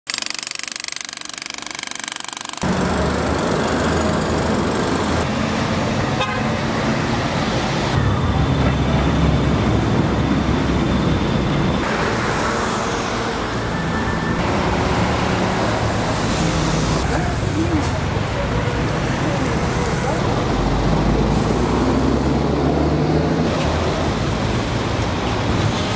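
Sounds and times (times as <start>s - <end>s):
jackhammer rattling into asphalt: 0.0s - 4.8s
cars driving past: 2.6s - 25.9s.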